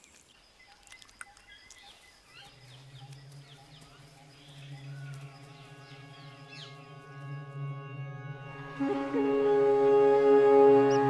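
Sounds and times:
small birds chirping: 0.0 - 7.7
low musical drone: 2.8 - 11.0.

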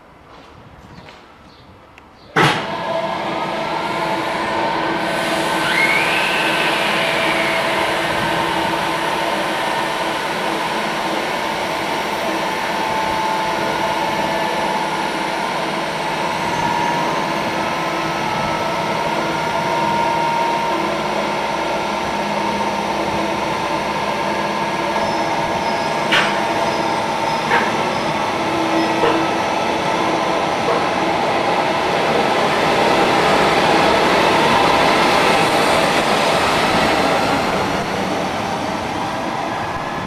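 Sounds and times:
rising and falling whine: 5.5 - 10.4.

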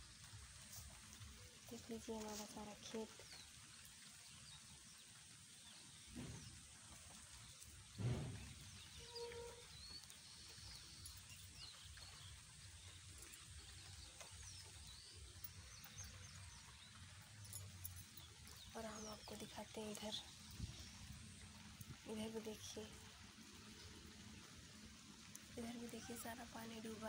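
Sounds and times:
distant bird chirps: 1.8 - 27.0
low thump: 8.0 - 8.8.

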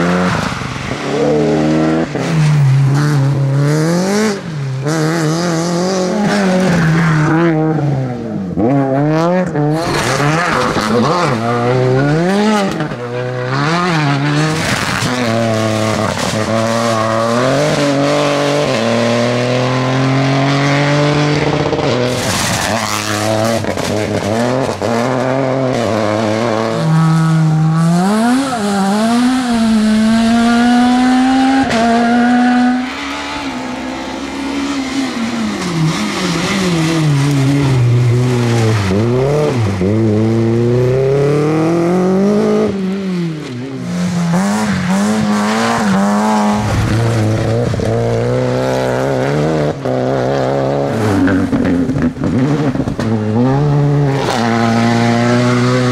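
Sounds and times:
rally car engines revving: 0.0 - 55.9.

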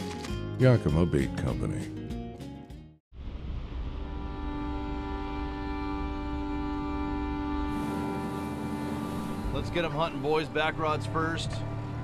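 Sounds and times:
low rumble: 3.2 - 10.4
sustained held chord: 4.0 - 11.8.

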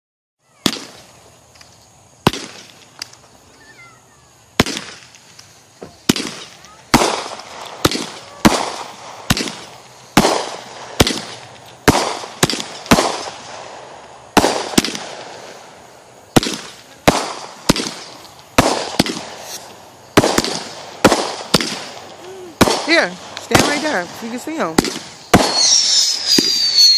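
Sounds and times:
fireworks bangs: 0.4 - 26.9.

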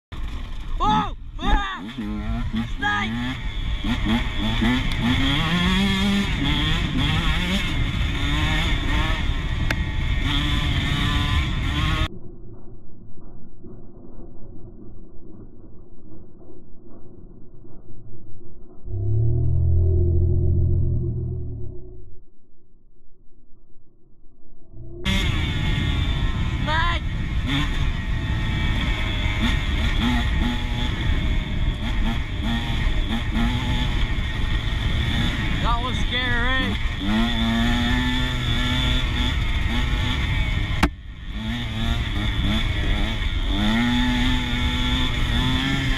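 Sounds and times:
dirt bike engine revving: 0.2 - 12.1, 25.0 - 45.9
wind rumble on microphone: 24.7 - 43.5.

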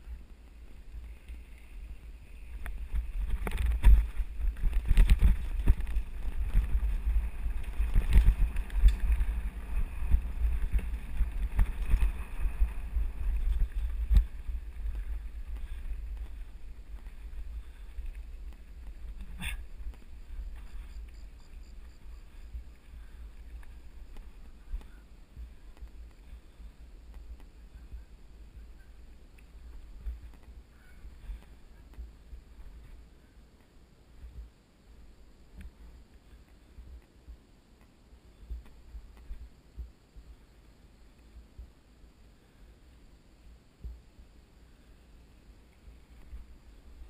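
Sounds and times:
wind buffeting microphone: 0.0 - 33.1
bike rattling over bumps: 0.3 - 28.7.

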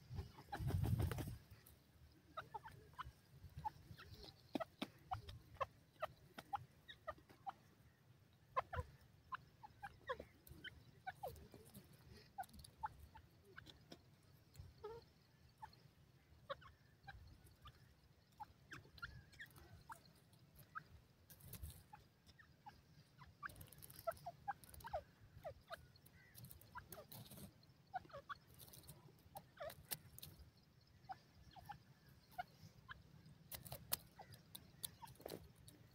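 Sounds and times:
bird clucking softly: 0.0 - 35.9.

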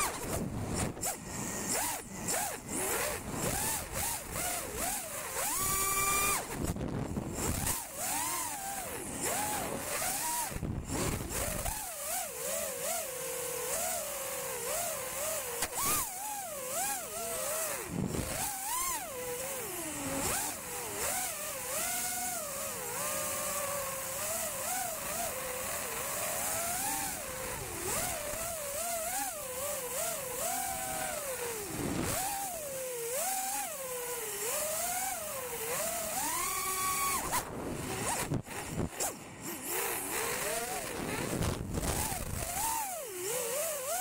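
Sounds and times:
rushing wind: 0.0 - 4.1
drone motors whining: 0.0 - 44.0.

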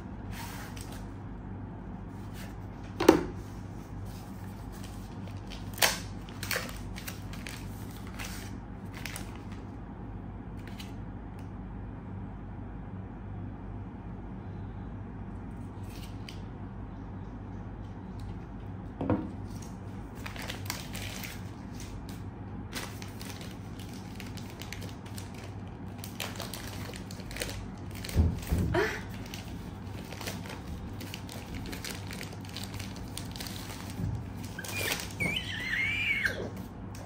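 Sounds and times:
faint low hum: 0.0 - 37.0
plastic wrap crinkling: 4.3 - 9.6, 19.4 - 36.7.

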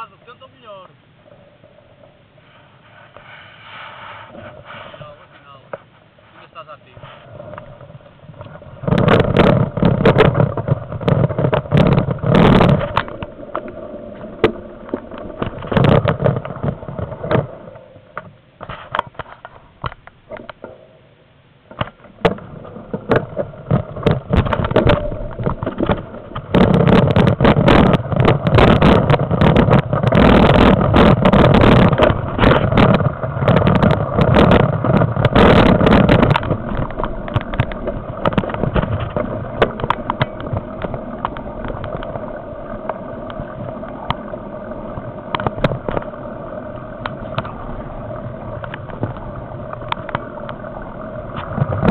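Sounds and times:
bike rattling over gravel: 7.1 - 18.0, 21.9 - 51.9
low rumble: 7.2 - 18.2, 22.1 - 51.9.

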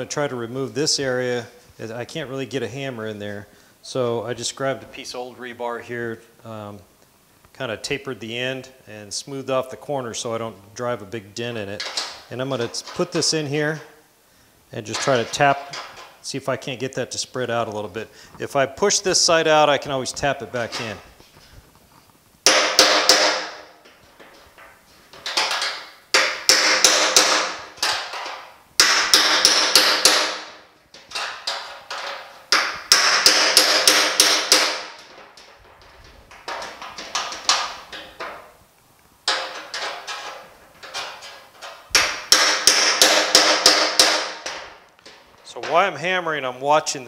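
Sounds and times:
hammer tapping steel: 28.8 - 30.5, 42.0 - 44.7.

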